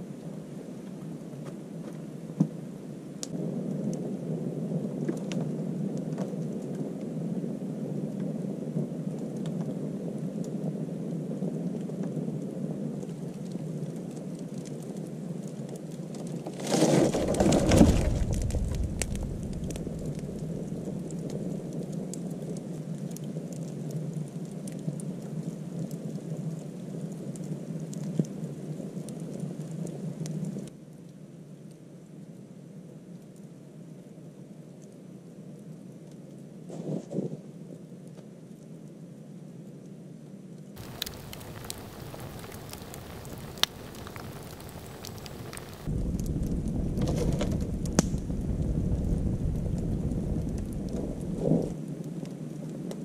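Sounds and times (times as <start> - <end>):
burning wood crackling: 11.3 - 30.7, 40.8 - 53.0
rush of flames: 16.2 - 23.5, 40.8 - 53.0.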